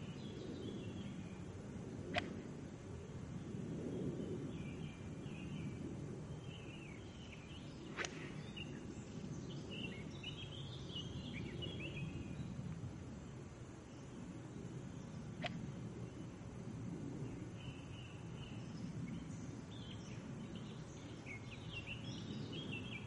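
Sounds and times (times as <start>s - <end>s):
steady low rumble: 0.0s - 23.0s
birds chirping and trilling: 3.3s - 12.6s, 17.2s - 23.0s.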